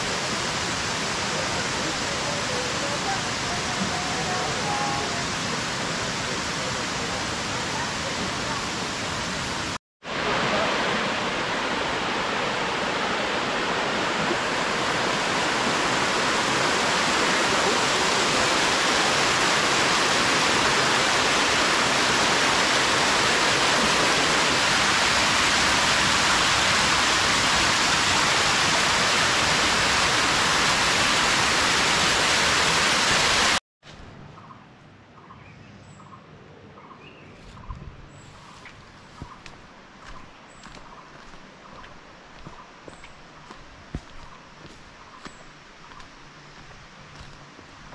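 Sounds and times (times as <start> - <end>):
waterfall rushing over rocks: 0.0 - 33.6.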